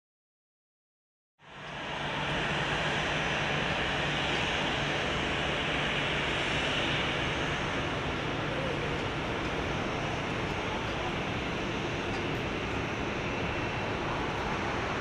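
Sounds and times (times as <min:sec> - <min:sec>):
distant jet engines rushing: 0:01.4 - 0:15.0.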